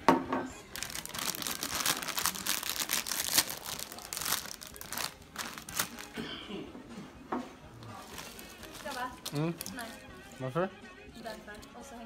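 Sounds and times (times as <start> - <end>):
foil crisp bag crinkling: 0.7 - 6.2, 8.0 - 10.0.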